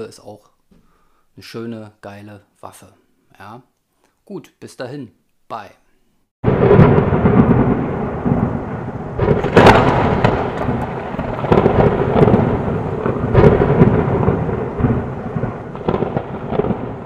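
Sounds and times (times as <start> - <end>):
steady rain: 6.4 - 17.0
thunder: 6.4 - 17.0.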